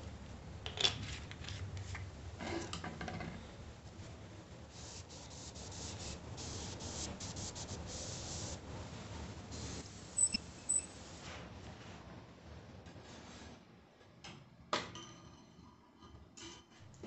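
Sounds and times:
short high squeaks: 0:10.2 - 0:11.0.

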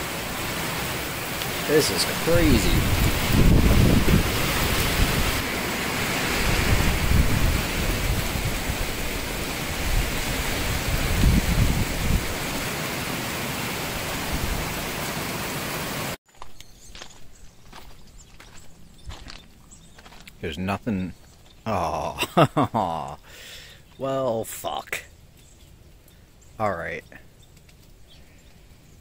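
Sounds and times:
steady hiss: 0:00.0 - 0:16.1
wind buffeting microphone: 0:02.2 - 0:12.7
footsteps on gravel: 0:16.3 - 0:20.4.

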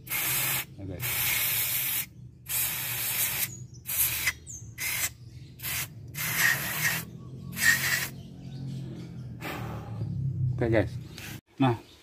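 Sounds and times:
aerosol can spraying: 0:00.0 - 0:08.1.

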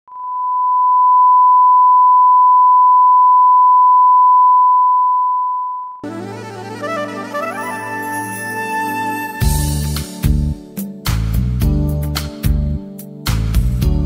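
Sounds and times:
music: 0:06.0 - 0:14.0.

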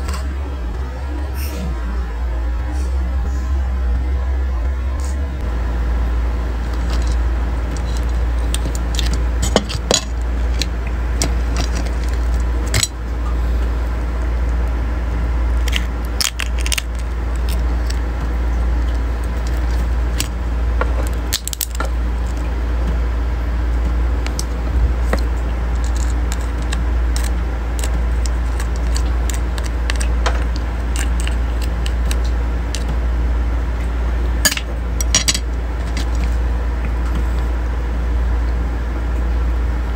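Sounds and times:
steady low hum: 0:00.0 - 0:39.9
crabs being broken apart: 0:06.7 - 0:13.0, 0:15.6 - 0:18.0, 0:18.8 - 0:22.4, 0:24.2 - 0:32.9.

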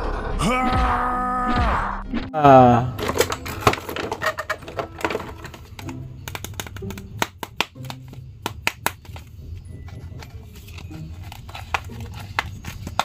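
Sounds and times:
plastic figures clicking together: 0:03.0 - 0:09.3.

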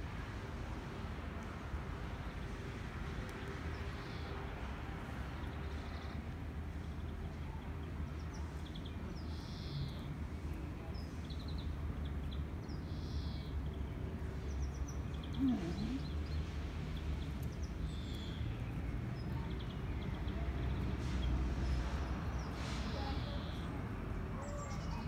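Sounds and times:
birds chirping: 0:05.3 - 0:10.2, 0:10.8 - 0:25.0.

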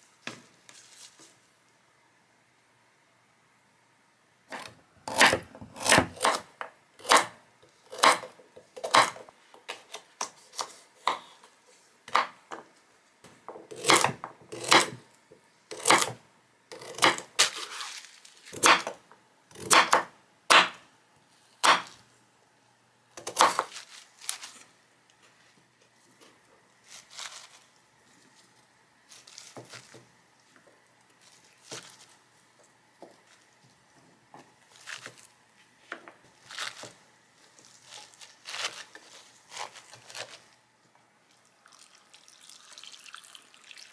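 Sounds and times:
knife chopping on wooden board: 0:04.5 - 0:07.3, 0:07.9 - 0:09.2, 0:18.6 - 0:19.0, 0:19.6 - 0:20.8, 0:21.6 - 0:22.0, 0:23.2 - 0:23.7.

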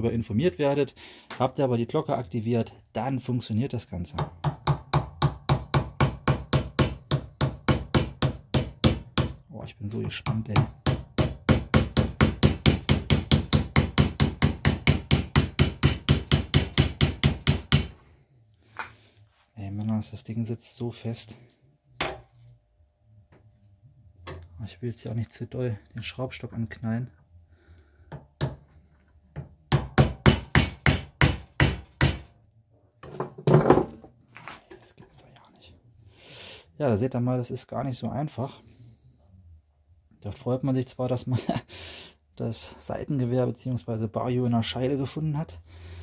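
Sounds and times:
hammer strikes on metal: 0:04.2 - 0:09.4, 0:10.2 - 0:18.0, 0:29.7 - 0:32.3
clattering knock with metallic ring: 0:33.2 - 0:34.1.

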